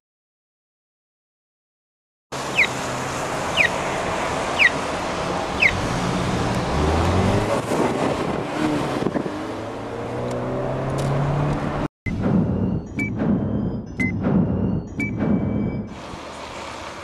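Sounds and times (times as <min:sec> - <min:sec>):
cars passing on busy street: 0:02.3 - 0:11.9, 0:14.0 - 0:17.0
car engine accelerating: 0:02.4 - 0:17.0
pedestrian crossing signal chirps: 0:02.5 - 0:02.8, 0:03.5 - 0:03.8, 0:04.5 - 0:04.8, 0:05.6 - 0:05.9, 0:12.6 - 0:16.0.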